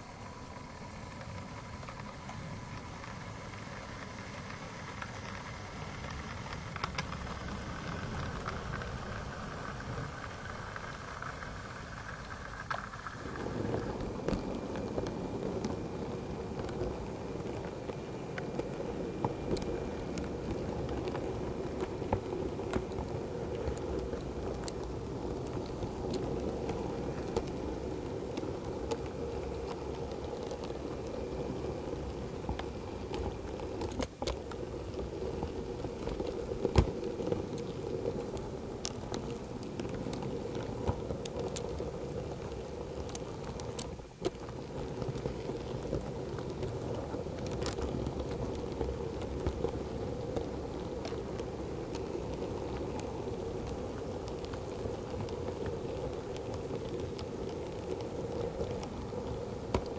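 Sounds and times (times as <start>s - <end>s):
model train motor hum: 0.0s - 14.0s
wheels clicking over rail joints: 0.0s - 59.9s.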